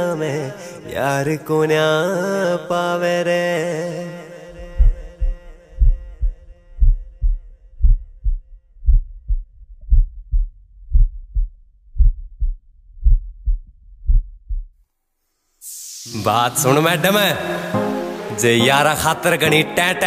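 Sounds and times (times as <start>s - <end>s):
heartbeat thumps: 4.6s - 14.8s.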